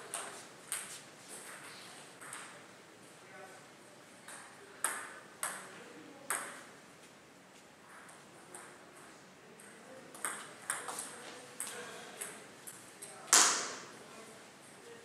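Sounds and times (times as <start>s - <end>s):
table tennis ball hits: 4.3s - 5.7s, 6.3s - 6.6s, 9.6s - 12.4s, 13.3s - 13.9s.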